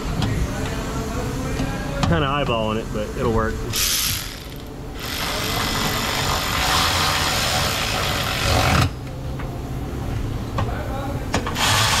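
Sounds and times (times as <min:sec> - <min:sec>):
power tool driving bolt: 0:03.8 - 0:09.0, 0:11.5 - 0:12.0.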